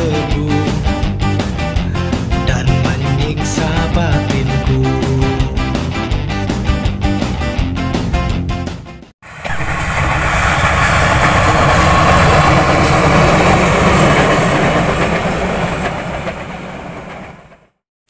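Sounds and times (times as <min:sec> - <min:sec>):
train wheels rumbling on rails: 0:09.2 - 0:17.8.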